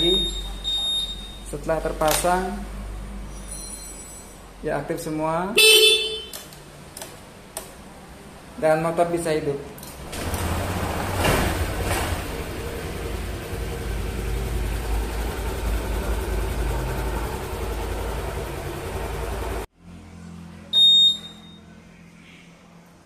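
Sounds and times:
scooter engine idling: 0:10.2 - 0:19.7
short high electronic beep: 0:20.7 - 0:21.7.

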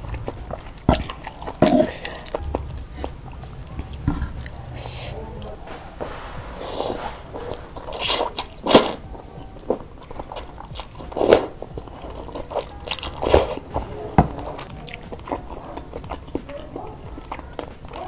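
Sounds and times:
chewing: 0:00.0 - 0:18.0
slurping noodles: 0:05.7 - 0:09.0, 0:10.7 - 0:11.6.

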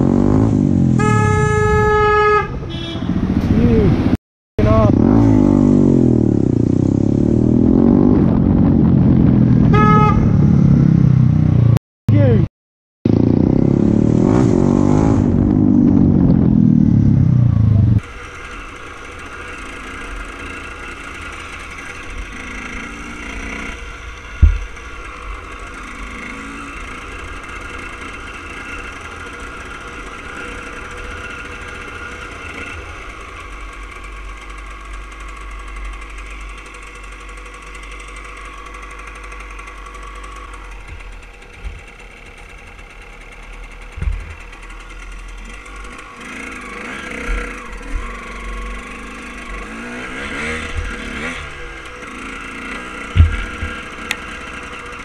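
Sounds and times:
motorcycle engine revving: 0:00.0 - 0:12.4, 0:13.1 - 0:55.0
horn beep: 0:01.0 - 0:03.4, 0:09.7 - 0:10.6
dirt bike engine running: 0:13.1 - 0:55.0.

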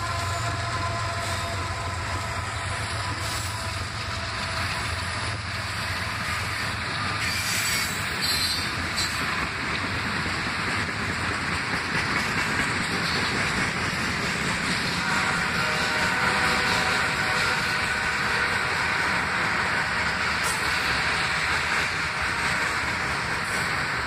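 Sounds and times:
diesel locomotive engine hum: 0:00.0 - 0:24.0
train wheels clickety-clack: 0:00.0 - 0:24.0
high wheel squeal: 0:06.2 - 0:09.3.

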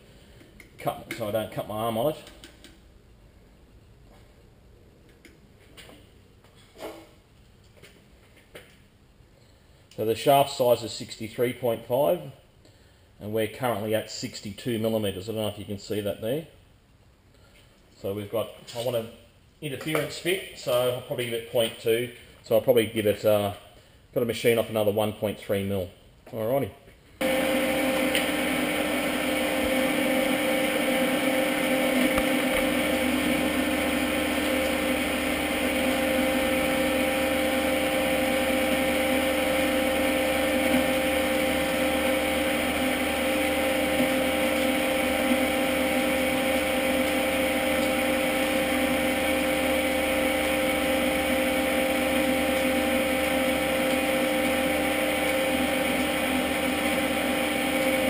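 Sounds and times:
metal lathe humming: 0:27.2 - 0:58.0.

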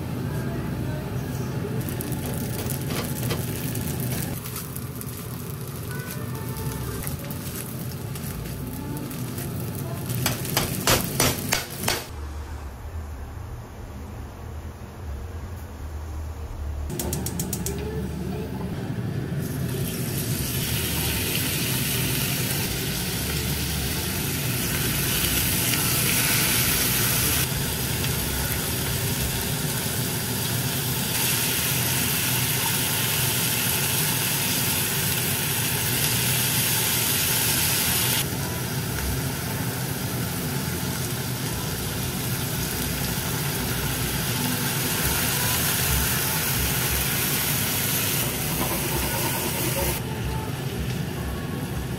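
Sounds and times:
meat sizzling in a pan: 0:19.9 - 0:50.0.

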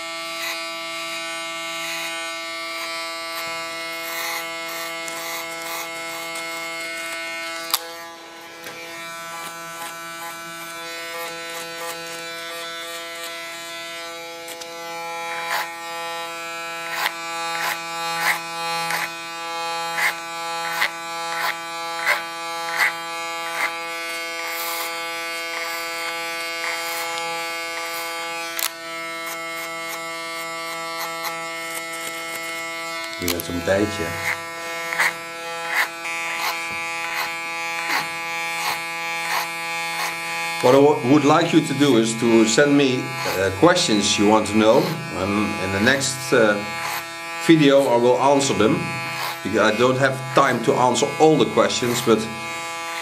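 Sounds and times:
electric hair clipper buzzing: 0:00.0 - 0:53.0
clipper clicking over comb: 0:30.7 - 0:40.8.

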